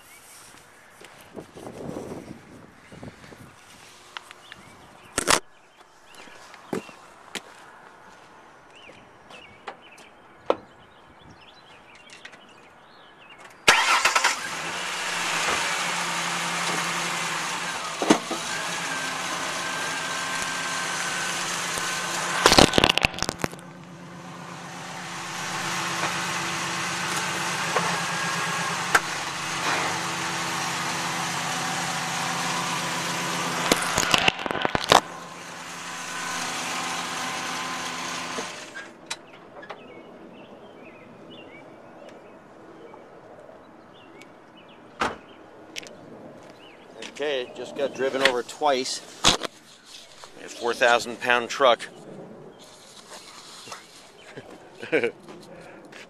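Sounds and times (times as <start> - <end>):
tyres crunching over camera: 5.1 - 5.5, 21.6 - 23.7, 33.6 - 35.1
pickup truck engine running: 13.7 - 38.8.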